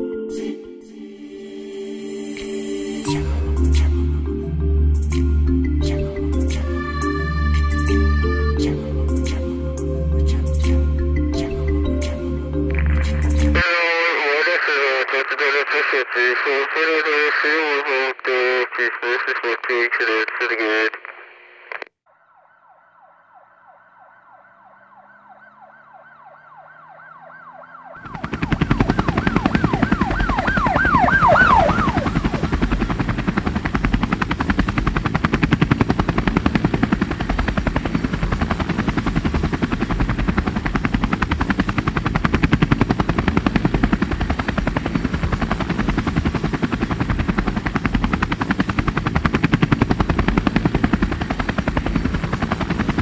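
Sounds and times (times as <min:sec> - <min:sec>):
helicopter rotor chop: 0:08.6 - 0:20.8, 0:27.8 - 0:53.0
police siren yelping: 0:22.1 - 0:33.2.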